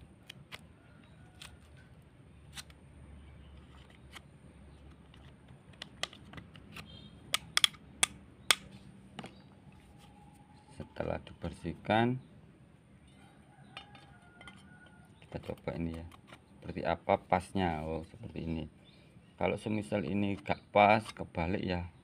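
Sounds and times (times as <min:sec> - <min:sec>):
metal rod scraping in wooden socket: 0:13.6 - 0:16.4.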